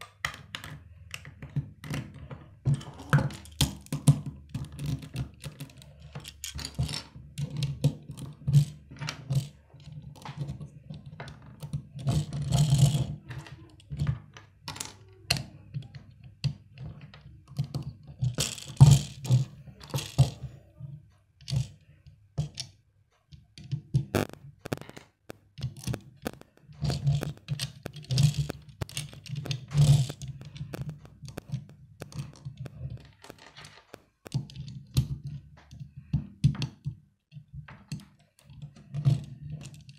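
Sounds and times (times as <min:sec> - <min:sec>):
plastic bricks clicking together: 0:00.0 - 0:20.4, 0:23.6 - 0:39.9
pieces scraping on wooden tabletop: 0:25.8 - 0:33.9.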